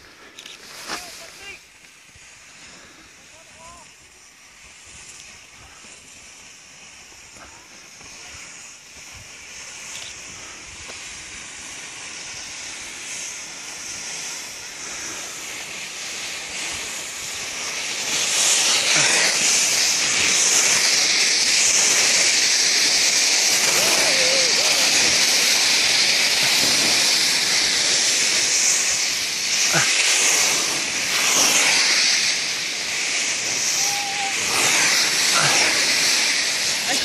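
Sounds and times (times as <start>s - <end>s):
skis scraping on snow: 0.0s - 37.0s.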